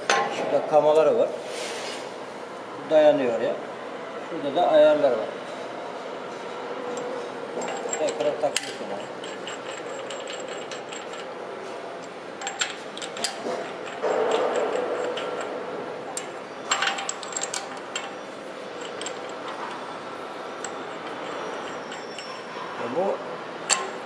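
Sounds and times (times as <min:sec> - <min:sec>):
metallic clinks of steel bolts: 0:07.0 - 0:11.4, 0:12.0 - 0:19.9, 0:23.7 - 0:24.0.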